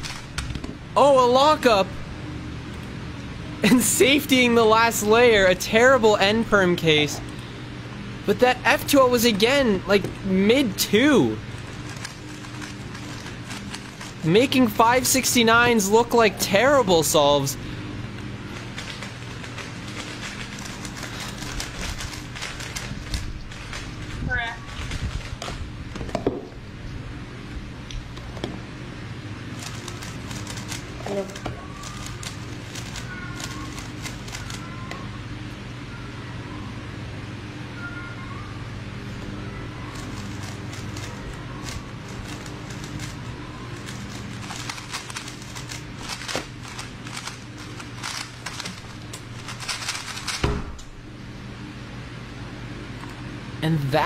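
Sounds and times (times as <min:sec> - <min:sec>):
low room hum: 0:00.0 - 0:54.0
puzzle cubes clicking: 0:43.8 - 0:50.4.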